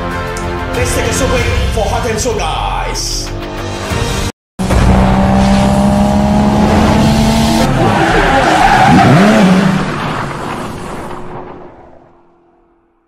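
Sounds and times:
race car engine revving: 4.6 - 10.8.

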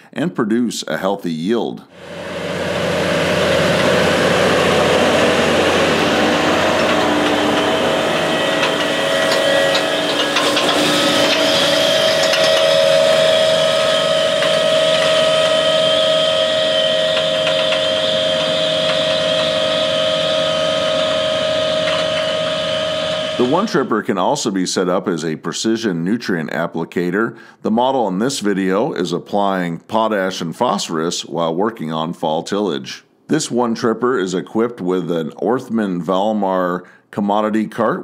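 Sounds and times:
tractor running under load: 2.0 - 23.8
implement clicks and rattles: 5.3 - 23.5.

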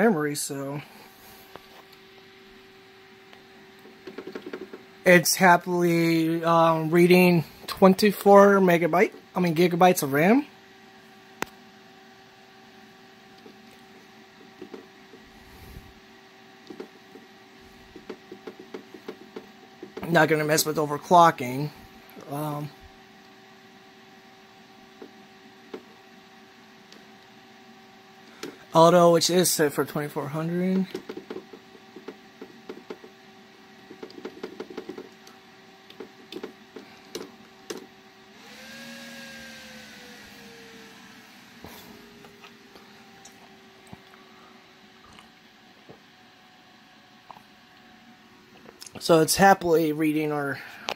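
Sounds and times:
faint steady hum: 0.0 - 50.9
computer fan rushing: 12.1 - 23.3, 24.8 - 43.8.

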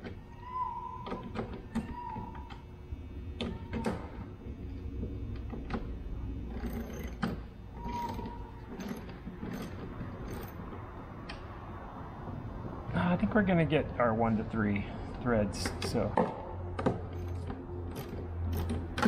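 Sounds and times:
steady low hum: 0.0 - 19.0
short squeaks: 6.6 - 9.7.

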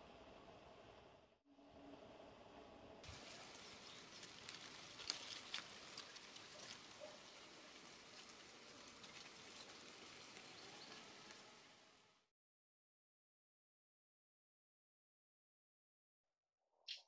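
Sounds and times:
quiet even hiss: 1.8 - 12.2.

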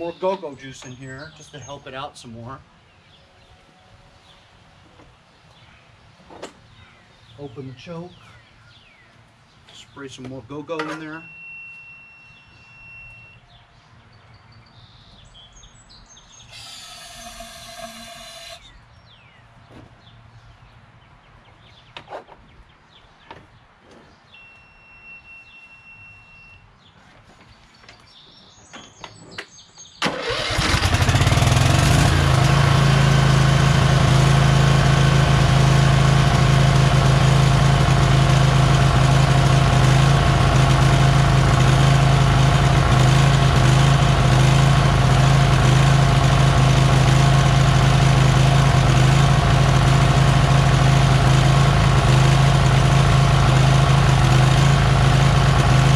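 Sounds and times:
engine cranking: 30.0 - 55.9
mower engine running loud: 30.2 - 55.9.

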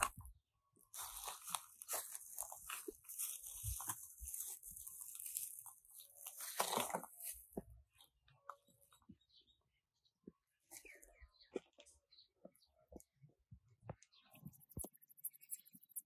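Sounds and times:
footsteps crunching on dry leaves: 0.9 - 7.6.

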